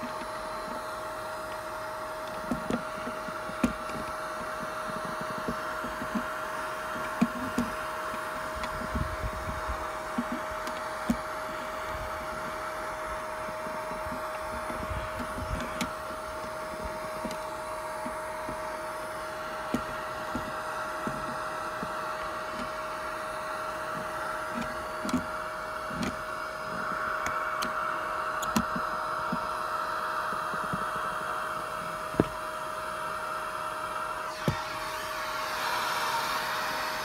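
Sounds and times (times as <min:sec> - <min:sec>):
vacuum cleaner running: 0:00.0 - 0:37.0.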